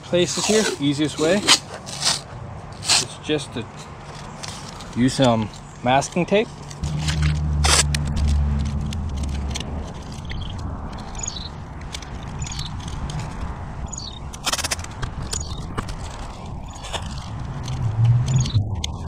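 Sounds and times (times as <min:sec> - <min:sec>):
tape handling scrapes: 0:00.2 - 0:05.7, 0:06.6 - 0:11.4, 0:12.0 - 0:18.6
tape ripping off roll: 0:00.3 - 0:03.1, 0:06.8 - 0:10.2.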